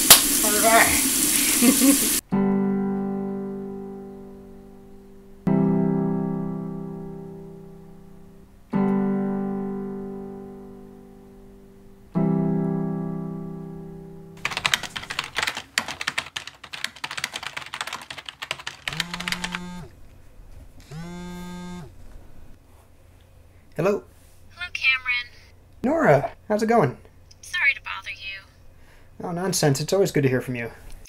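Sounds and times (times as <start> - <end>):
electric piano chords: 2.2 - 20.0
keyboard typing clicks: 14.4 - 19.9
phone ringing buzzes: 18.9 - 19.9, 20.8 - 22.0.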